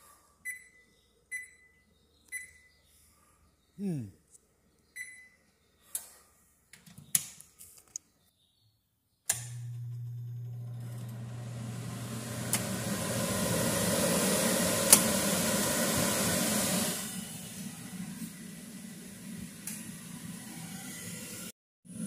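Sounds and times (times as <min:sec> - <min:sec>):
range hood exhaust fan running: 0:09.8 - 0:20.2.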